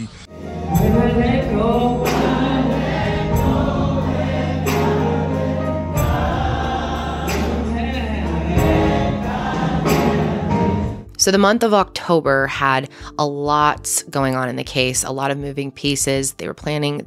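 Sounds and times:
choir singing gospel: 0:00.3 - 0:11.1
sustained low accompaniment: 0:00.3 - 0:11.1.

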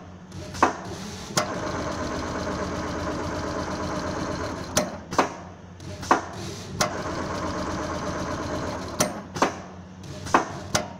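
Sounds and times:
sewing machine running hum: 0:00.3 - 0:05.1, 0:05.8 - 0:09.3
sewing machine sharp clicks: 0:00.5 - 0:10.9.

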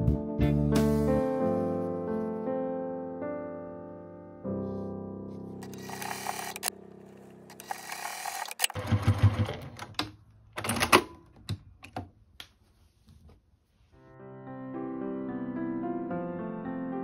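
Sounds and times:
piano music: 0:00.0 - 0:07.5, 0:14.0 - 0:17.0
sewing machine clicks: 0:05.6 - 0:06.7, 0:07.5 - 0:11.1
sewing machine stitching: 0:05.6 - 0:06.7, 0:07.5 - 0:09.9.

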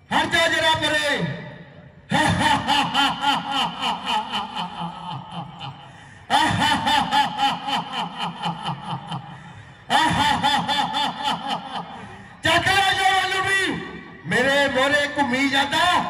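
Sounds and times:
person laughing: 0:02.1 - 0:12.1.

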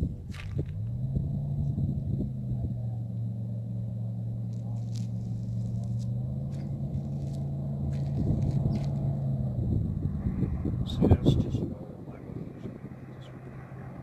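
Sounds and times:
boat engines droning: 0:00.0 - 0:14.0.

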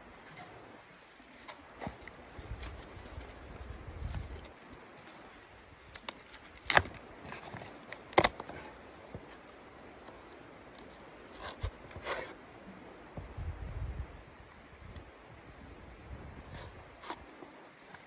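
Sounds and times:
rustling of cardboard sheets: 0:01.0 - 0:05.5.

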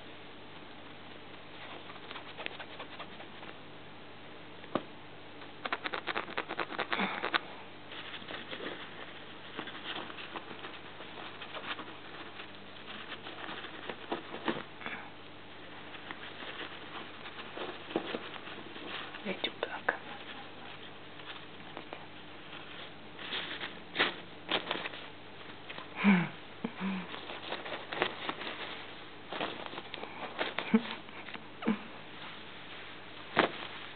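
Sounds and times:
fabric scratching and rustling: 0:01.6 - 0:03.6, 0:05.6 - 0:14.7, 0:15.8 - 0:25.7, 0:27.2 - 0:30.8, 0:32.2 - 0:33.9.

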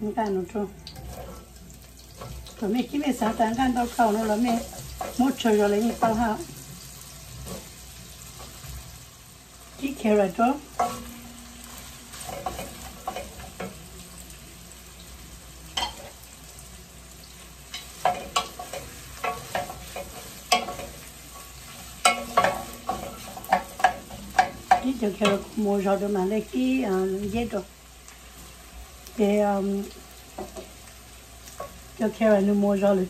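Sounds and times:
carrots sizzling in hot oil: 0:00.0 - 0:33.0
wooden spatula scraping a pan: 0:01.0 - 0:06.4, 0:07.3 - 0:09.0.

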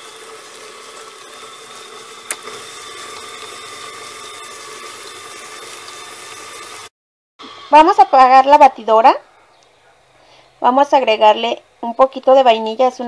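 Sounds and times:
electric mixer running: 0:00.0 - 0:08.8.

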